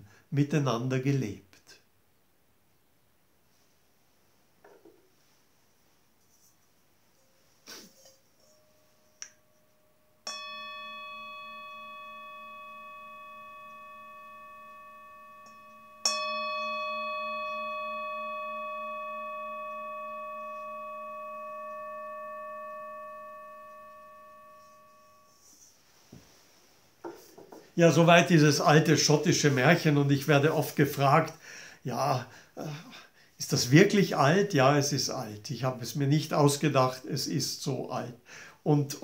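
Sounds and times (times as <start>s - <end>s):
singing bowl ringing: 8.0s - 25.7s.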